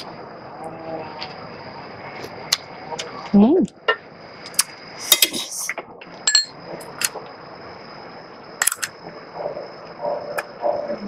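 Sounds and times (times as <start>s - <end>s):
metal spoon clinking glass bowls: 6.3s - 6.6s.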